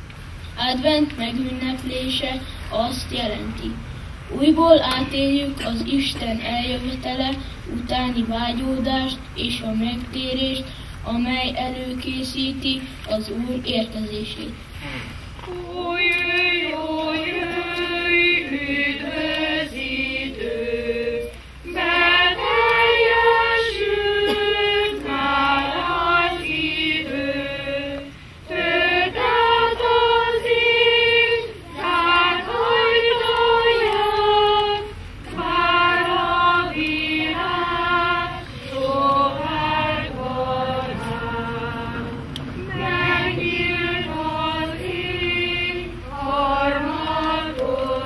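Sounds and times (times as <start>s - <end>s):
children's choir singing: 15.4s - 48.0s.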